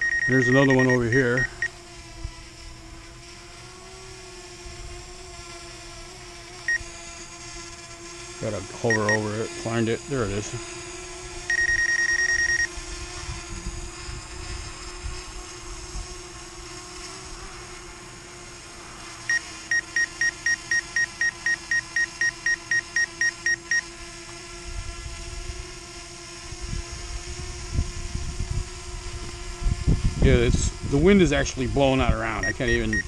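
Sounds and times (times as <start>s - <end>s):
rapid warning beeps: 0.0s - 1.8s, 8.9s - 9.3s, 11.5s - 12.7s, 19.3s - 23.9s, 32.4s - 33.0s
drone hovering hum: 0.0s - 2.6s, 11.2s - 16.6s, 30.9s - 33.0s
wind buffeting microphone: 26.6s - 32.3s.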